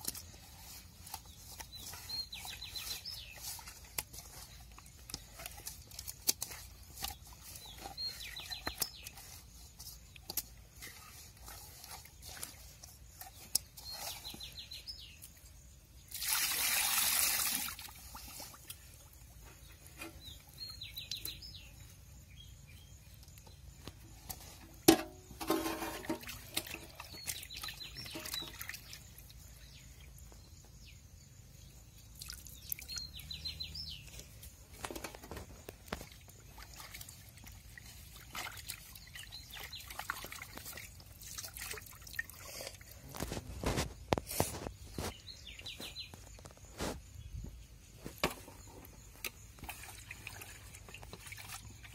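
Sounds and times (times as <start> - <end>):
water splashing in a metal basin: 16.0 - 19.3, 24.4 - 29.6, 32.1 - 33.2, 34.1 - 43.1, 49.2 - 51.9.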